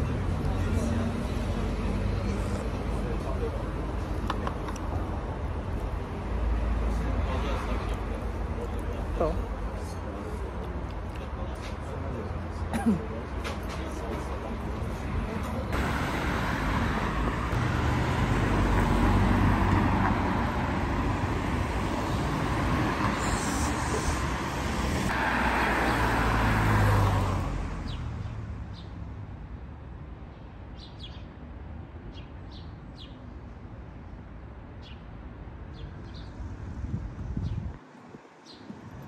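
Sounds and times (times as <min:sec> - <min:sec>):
cars passing on road: 0:00.0 - 0:39.0.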